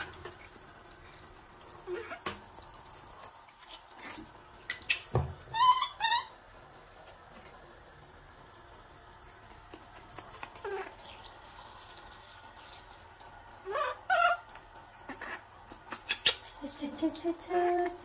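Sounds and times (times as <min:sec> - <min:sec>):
shower spraying water: 0:00.0 - 0:18.0
baby monkey squealing: 0:04.7 - 0:06.3, 0:13.6 - 0:14.4, 0:15.1 - 0:16.5.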